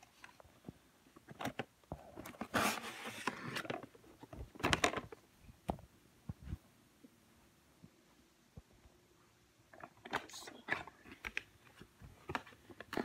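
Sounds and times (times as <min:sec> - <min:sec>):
box scraping and rustling: 0:02.2 - 0:03.9.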